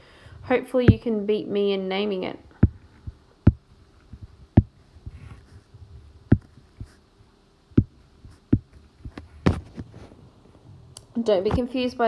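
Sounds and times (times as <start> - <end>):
faint steady hum: 0.0 - 12.0
stylus tapping on glass screen: 4.6 - 4.8, 6.3 - 7.0, 7.8 - 9.2.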